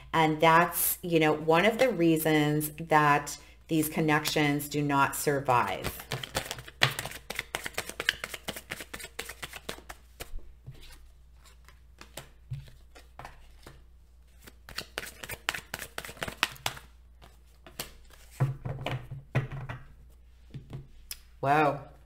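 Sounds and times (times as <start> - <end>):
cards being shuffled: 5.8 - 18.5.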